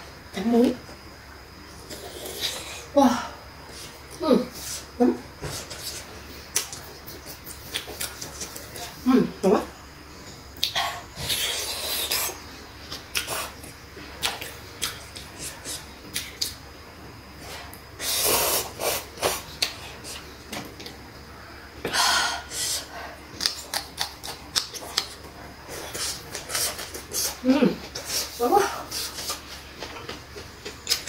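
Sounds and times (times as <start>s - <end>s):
chewing clicks: 6.5s - 8.9s, 23.4s - 25.2s, 29.0s - 31.0s.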